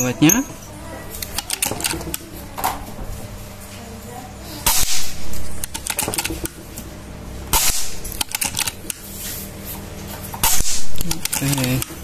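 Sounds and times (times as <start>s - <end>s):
air rifle shot: 4.6s - 5.2s, 7.5s - 8.0s, 10.4s - 10.9s.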